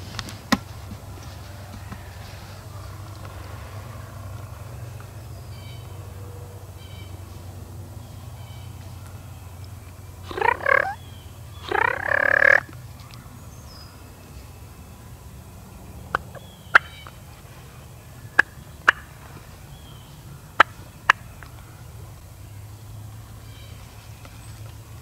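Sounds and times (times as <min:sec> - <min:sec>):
turkey gobbling: 0:10.2 - 0:11.0, 0:11.6 - 0:12.7, 0:18.3 - 0:19.1.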